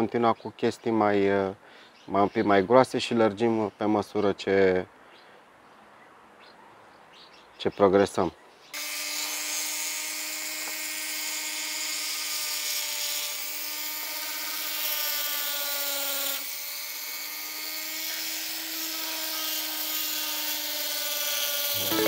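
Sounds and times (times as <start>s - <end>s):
rotary tool engraving stone: 8.8s - 21.9s.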